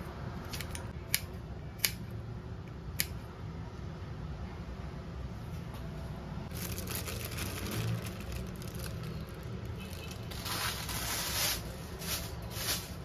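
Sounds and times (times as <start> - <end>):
plastic bag crinkling: 6.5 - 13.0.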